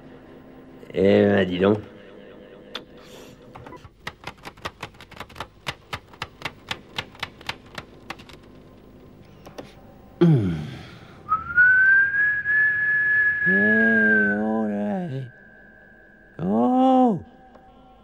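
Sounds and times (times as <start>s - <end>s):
high whistled note: 11.3s - 17.5s.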